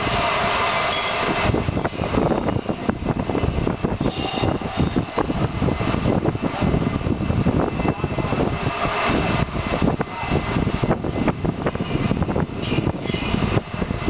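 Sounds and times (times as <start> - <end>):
industrial machinery roar: 0.0 - 14.0.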